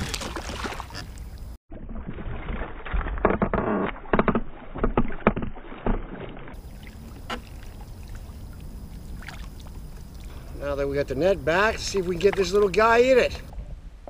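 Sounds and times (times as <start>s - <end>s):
fish splashing at water surface: 0.0s - 3.0s, 4.6s - 10.5s.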